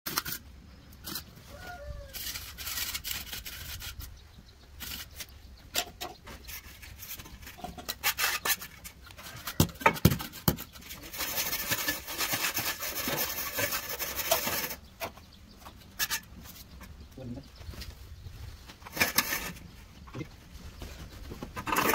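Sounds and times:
scraping on hard surface: 0:01.0 - 0:16.9, 0:18.7 - 0:19.8, 0:20.8 - 0:21.9.

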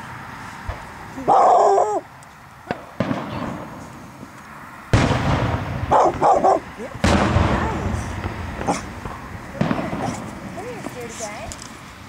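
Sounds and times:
firework pops: 0:02.7 - 0:03.8, 0:07.0 - 0:11.8.

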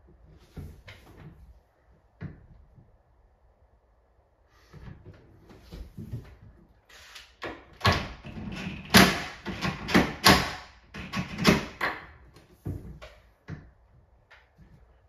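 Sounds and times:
cabinet door knocks and clatter: 0:07.5 - 0:13.8.

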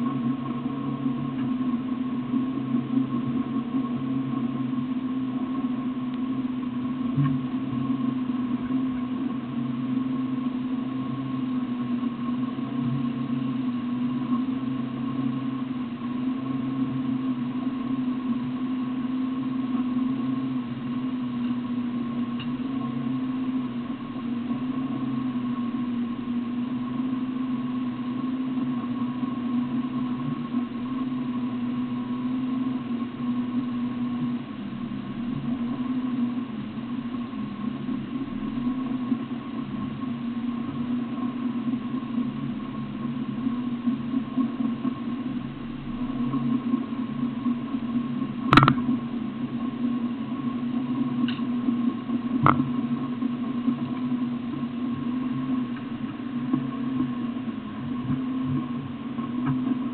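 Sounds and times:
engine idling: 0:28.3 - 0:50.3.

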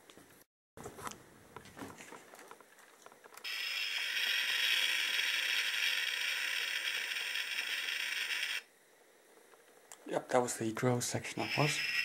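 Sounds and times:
toy electronic drill sound: 0:03.4 - 0:08.7, 0:11.2 - 0:12.0.

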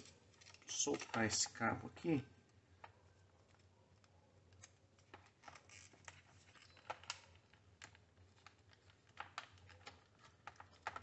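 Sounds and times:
small clicks and taps of wiring: 0:02.8 - 0:11.0.

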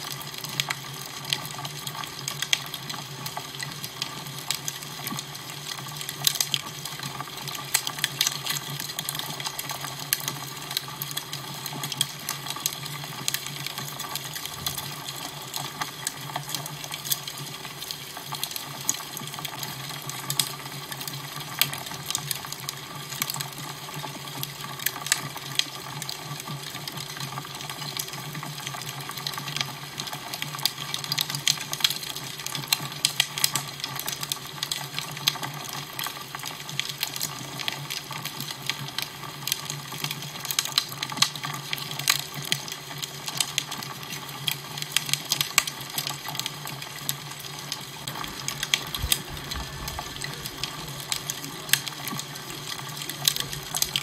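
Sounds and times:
fire crackling and popping: 0:00.0 - 0:54.0
steady low hum: 0:48.1 - 0:51.9.

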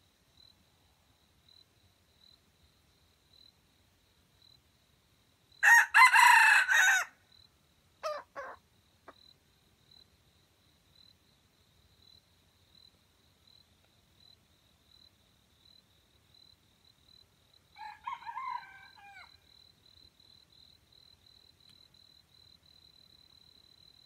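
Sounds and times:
high pulsing insect chirp: 0:00.0 - 0:24.0
rooster crowing: 0:05.6 - 0:07.2, 0:17.8 - 0:19.4.

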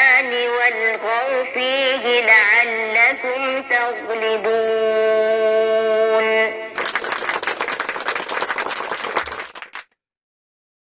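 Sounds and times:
woman reciting: 0:00.0 - 0:06.7
applause: 0:06.8 - 0:10.0.

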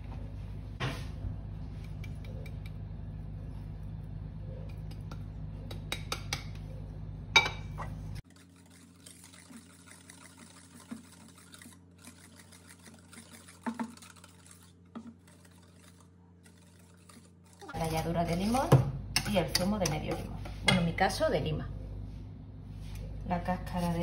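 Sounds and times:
low steady hum: 0:00.0 - 0:24.0
whisk stirring batter in steel bowl: 0:08.2 - 0:20.7, 0:23.4 - 0:24.0.

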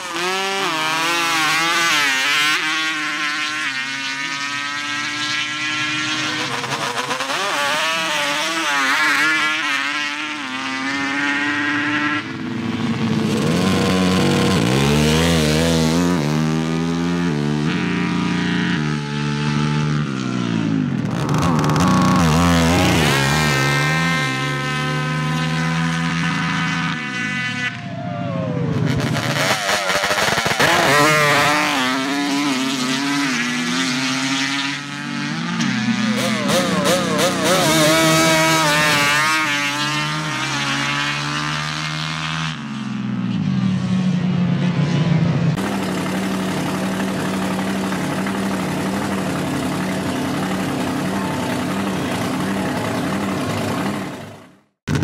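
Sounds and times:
atv engines at full throttle: 0:00.0 - 0:55.0.

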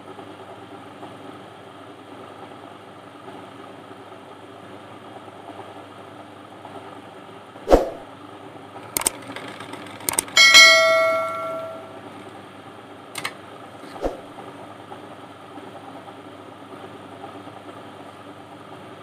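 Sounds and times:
sewing machine running: 0:08.8 - 0:10.4
sharp clicks: 0:08.9 - 0:09.3, 0:10.0 - 0:10.4.

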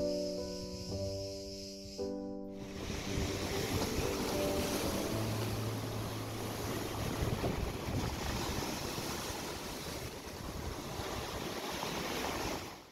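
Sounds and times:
steady rushing noise: 0:02.6 - 0:10.8.

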